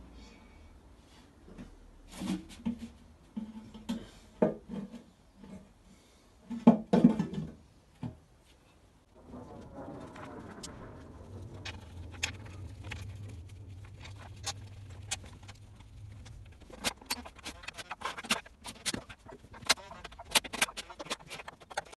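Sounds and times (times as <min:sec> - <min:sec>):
low hum: 0:09.1 - 0:19.7.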